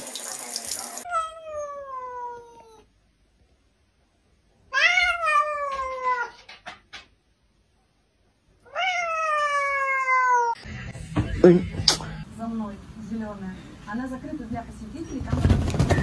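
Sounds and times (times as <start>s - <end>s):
cat meowing: 1.0s - 2.9s, 4.7s - 6.5s, 8.6s - 10.6s.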